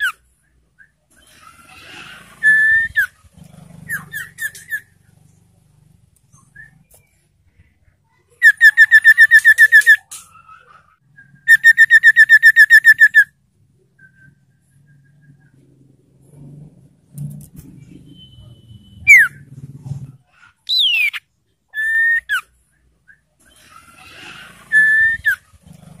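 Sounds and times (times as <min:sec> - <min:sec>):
bird whistled notes: 0:02.4 - 0:03.2, 0:08.4 - 0:10.1, 0:11.1 - 0:13.3, 0:18.1 - 0:19.4, 0:20.7 - 0:21.2, 0:21.8 - 0:22.5, 0:24.7 - 0:25.4
bird trills: 0:03.9 - 0:05.0, 0:08.3 - 0:13.3, 0:18.0 - 0:19.4, 0:20.6 - 0:22.6.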